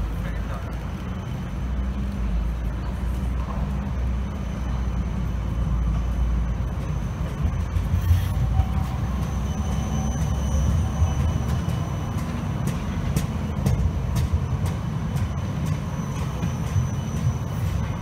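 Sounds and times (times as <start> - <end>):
tram wheels rumbling on rails: 0.0 - 18.0
faint high whine: 0.1 - 13.1.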